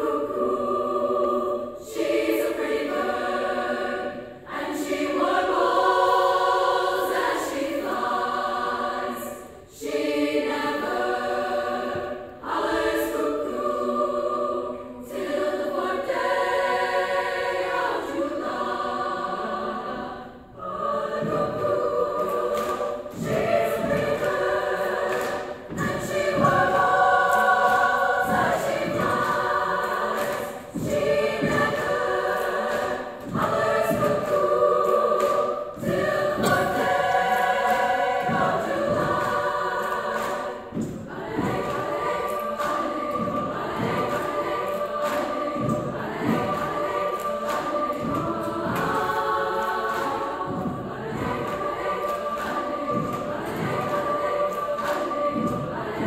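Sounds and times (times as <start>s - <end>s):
women's choir singing: 0.0s - 56.0s
low regular beats: 20.9s - 56.0s.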